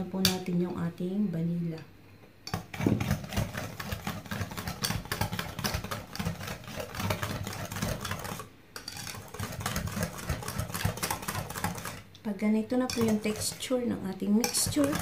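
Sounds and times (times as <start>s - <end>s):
whisk clattering against bowl: 2.5s - 12.0s, 12.8s - 15.0s.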